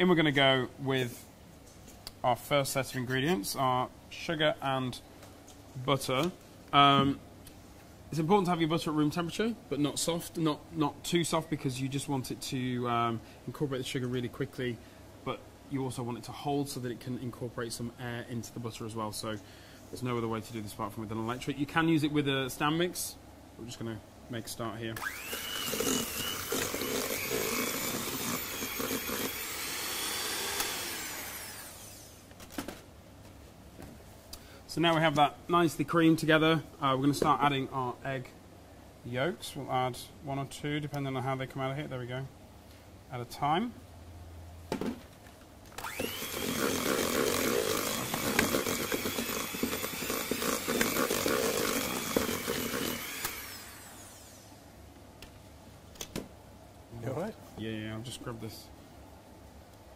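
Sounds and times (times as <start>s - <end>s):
electric hand mixer whining: 25.0s - 32.2s, 45.8s - 54.5s.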